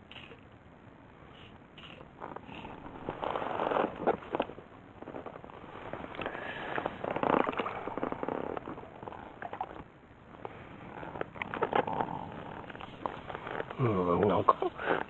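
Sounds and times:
handling clicks and rustles: 2.2s - 15.0s
water splashing and lapping: 5.6s - 9.9s.

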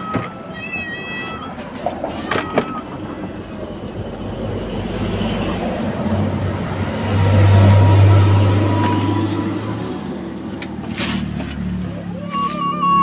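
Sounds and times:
passing vehicle engine rumble: 2.8s - 13.0s.

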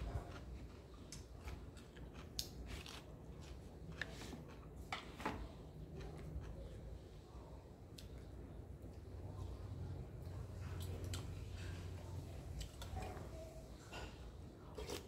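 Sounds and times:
chewing: 0.0s - 5.2s, 5.9s - 7.0s, 14.6s - 15.0s.

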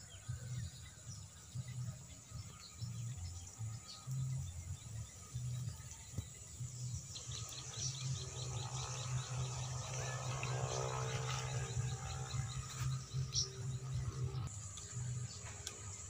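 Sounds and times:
bird chirping: 0.0s - 16.0s
low rumble: 6.6s - 16.0s.

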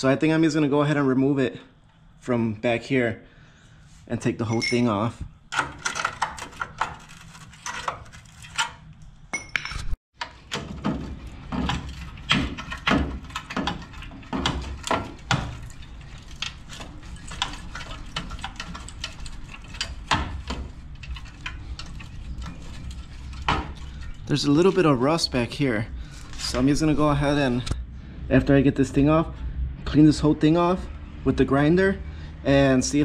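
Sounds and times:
metal tearing: 5.5s - 9.0s
sheet metal clanking and scraping: 10.2s - 27.7s.

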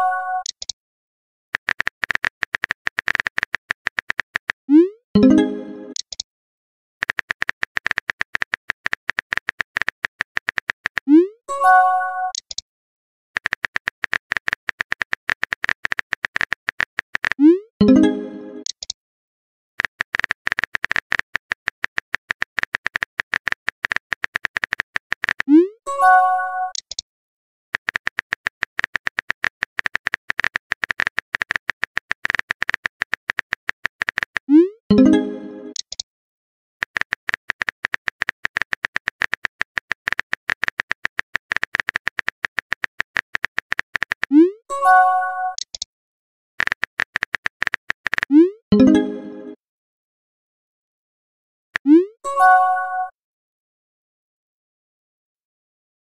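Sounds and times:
phone keyboard typing clicks: 0.4s - 0.8s, 1.6s - 4.6s, 5.3s - 6.2s, 7.0s - 11.1s, 12.3s - 12.6s, 13.4s - 17.4s, 18.6s - 19.0s, 19.8s - 25.5s, 26.7s - 27.0s, 27.8s - 36.0s, 36.8s - 44.4s, 45.5s - 45.9s, 46.6s - 49.5s
keyboard tap clicks: 35.7s - 36.0s.

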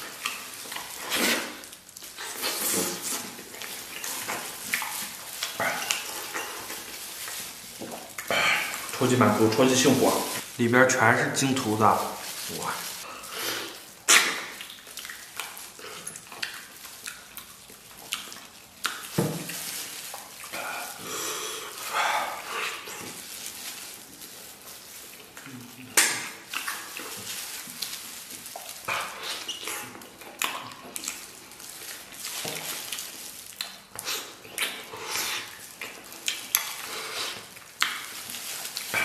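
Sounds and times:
sticky meat tearing: 0.0s - 39.0s
wet chewing and slurping: 0.0s - 39.0s
sharp mouth smacks: 14.1s - 14.7s.

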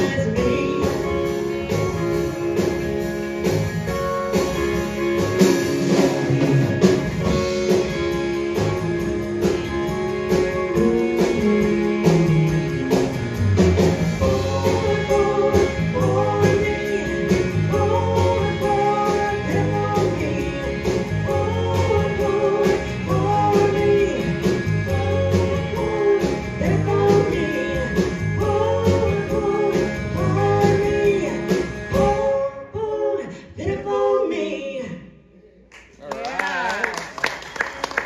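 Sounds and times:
woman singing: 0.0s - 2.4s, 10.3s - 12.3s, 14.1s - 35.0s
country-rock band playing: 0.0s - 33.2s.

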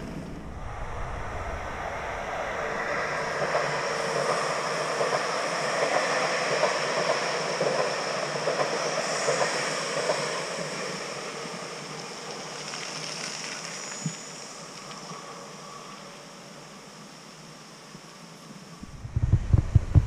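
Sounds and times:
electric trains passing: 0.0s - 18.8s
train wheel clacks: 3.3s - 12.0s.

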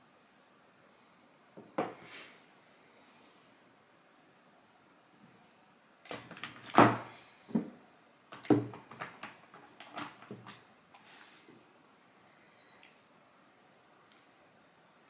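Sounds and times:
objects knocking and clicking: 6.1s - 10.6s.

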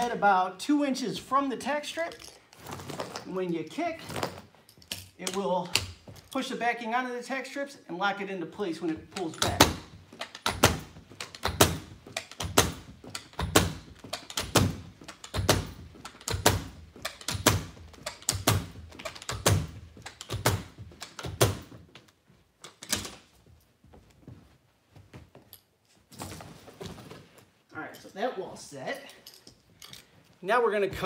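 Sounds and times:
carpet knee kicker thuds: 9.4s - 22.0s.

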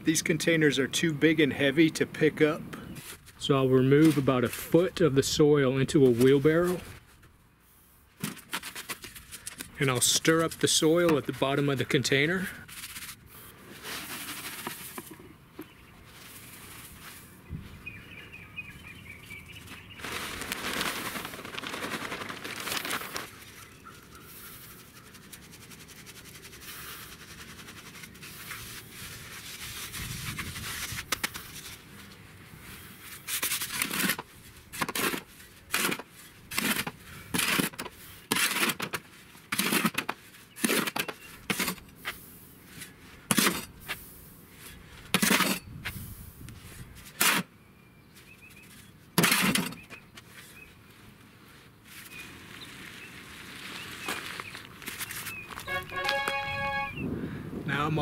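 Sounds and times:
soil rustling by hand: 2.8s - 17.9s, 19.5s - 47.5s, 48.1s - 56.9s
spade scraping in metal wheelbarrow: 13.8s - 15.1s, 40.6s - 41.8s, 43.3s - 44.0s, 45.1s - 45.7s, 49.2s - 49.8s.

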